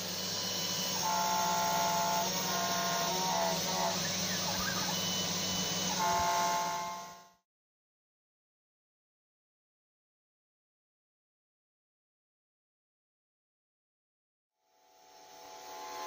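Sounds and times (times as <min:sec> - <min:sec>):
hiss of cutting: 0:00.0 - 0:07.0
spindle motor humming: 0:00.0 - 0:07.3
stepper motors whining: 0:00.0 - 0:07.3.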